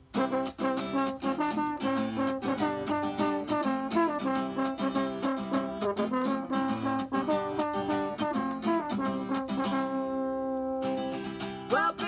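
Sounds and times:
strummed acoustic guitar: 0.0s - 12.0s
french horn melody: 0.1s - 11.0s.

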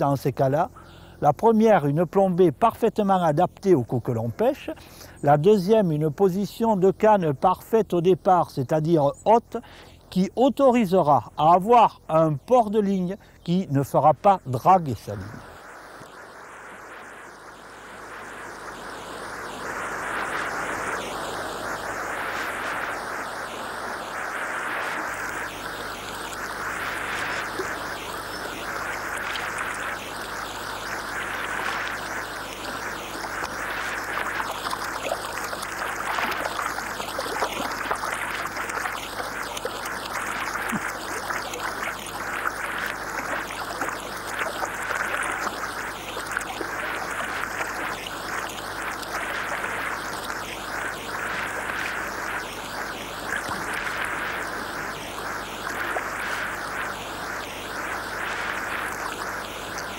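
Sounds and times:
river water rushing over stones: 18.0s - 59.9s
small water splashes: 25.0s - 59.9s.

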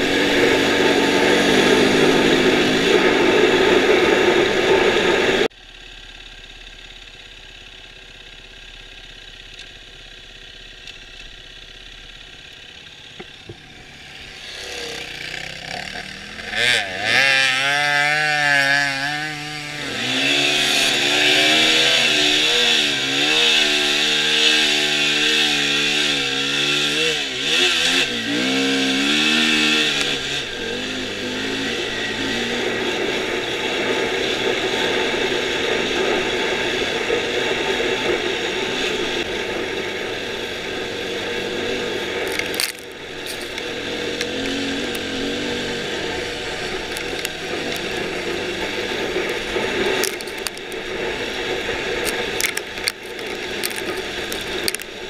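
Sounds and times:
dirt bike engine revving: 0.0s - 5.5s, 10.2s - 55.0s
wind noise: 0.0s - 5.5s.

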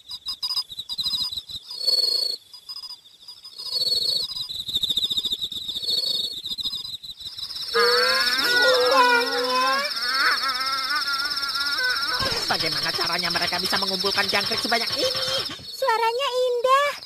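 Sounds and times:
crickets chirping: 0.0s - 17.0s
wavering voice-like sound: 7.8s - 17.0s.

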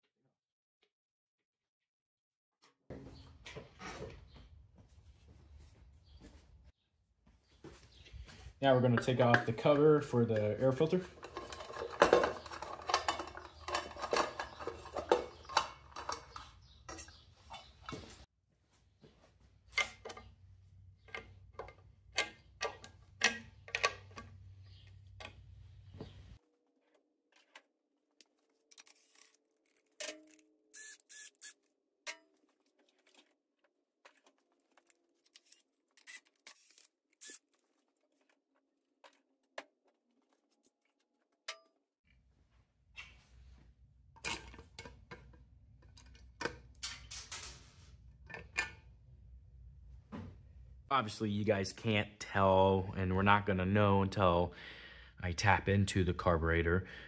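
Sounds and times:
hand tools clicking on metal: 8.9s - 17.2s.

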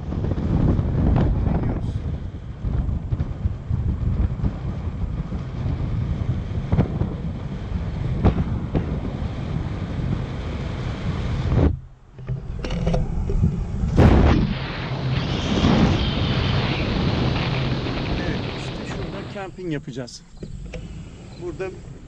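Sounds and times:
low road rumble: 0.0s - 22.0s
wind buffeting microphone: 0.0s - 22.0s
short thumps: 11.6s - 15.8s.

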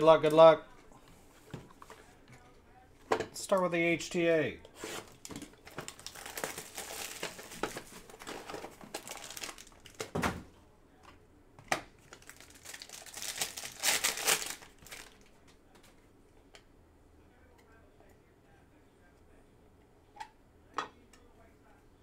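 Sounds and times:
foil wrapper tearing and crinkling: 5.0s - 10.1s, 12.0s - 15.3s.

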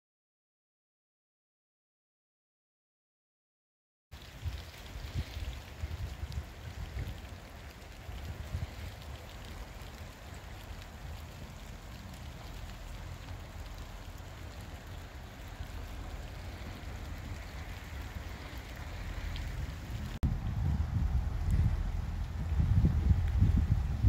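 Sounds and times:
rain hiss: 4.2s - 24.0s
wind rumble on microphone: 4.2s - 24.0s.

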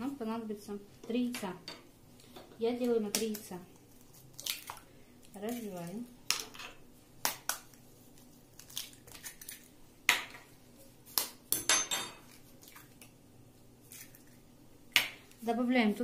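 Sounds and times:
eggs cracking on a plastic bowl: 2.2s - 6.6s, 7.2s - 10.5s, 13.9s - 15.4s.

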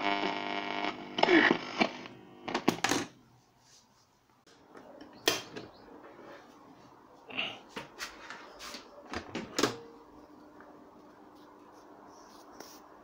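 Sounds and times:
radio buzzing mains hum: 0.0s - 3.1s.

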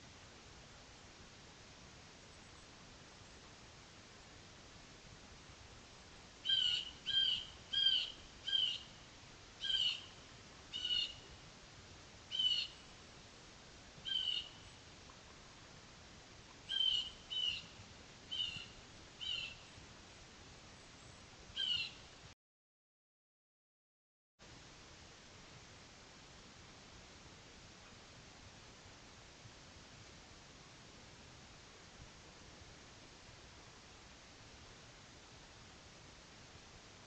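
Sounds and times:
faint steady hiss: 0.0s - 22.4s, 24.4s - 37.0s.

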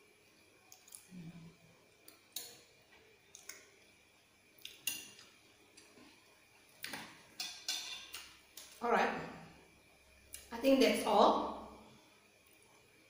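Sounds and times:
cutlery clinking on ceramic plate: 7.4s - 8.3s.

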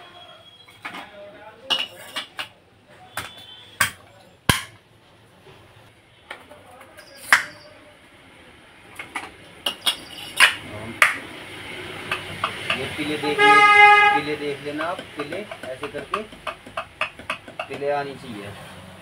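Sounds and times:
metallic clinks and knocks: 9.0s - 10.6s.

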